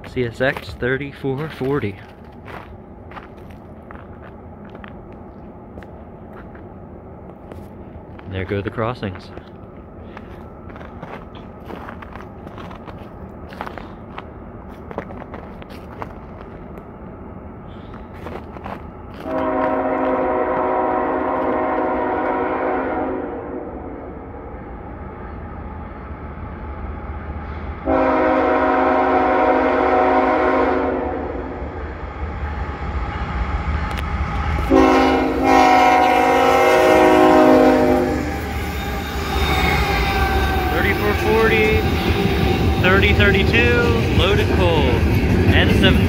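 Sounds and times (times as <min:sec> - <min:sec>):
diesel locomotive rumble: 0:00.0 - 0:46.0
train rolling: 0:00.0 - 0:46.0
locomotive air horn blasts: 0:19.2 - 0:23.8, 0:27.8 - 0:31.4, 0:34.6 - 0:43.9.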